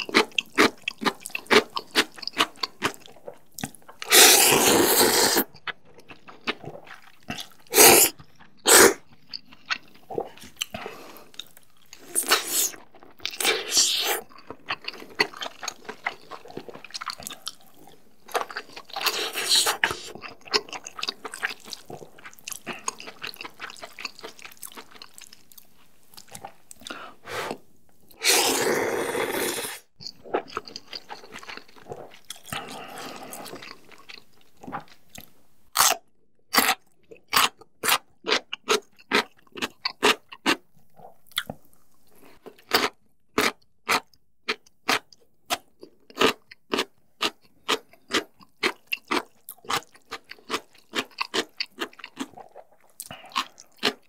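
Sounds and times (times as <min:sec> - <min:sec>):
wet chewing: 0:00.0 - 0:27.6, 0:28.2 - 0:35.9, 0:36.6 - 0:54.0
loud noodle slurps: 0:04.0 - 0:05.5, 0:07.7 - 0:09.0, 0:19.0 - 0:20.1, 0:28.2 - 0:29.9.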